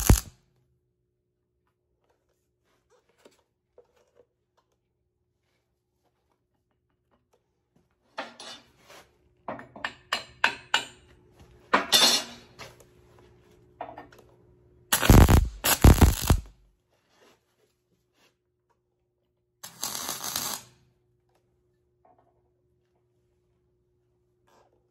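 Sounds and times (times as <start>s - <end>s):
welding arc crackling: 0.0s - 0.3s, 14.9s - 16.5s, 19.6s - 20.8s.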